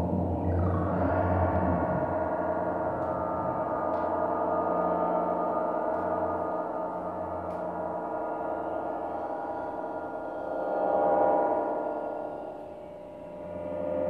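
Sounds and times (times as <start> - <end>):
synthesizer drone: 0.0 - 14.0.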